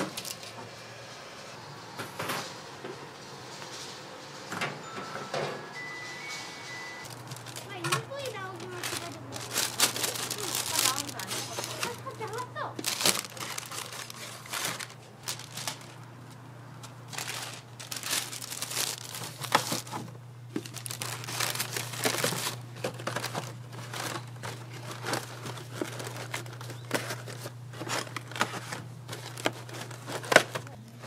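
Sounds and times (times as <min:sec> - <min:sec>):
packaging crinkling: 0:06.7 - 0:31.0.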